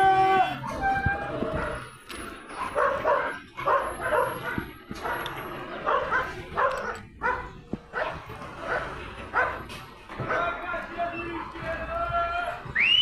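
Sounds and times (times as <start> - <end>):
dog barking: 2.6 - 9.7.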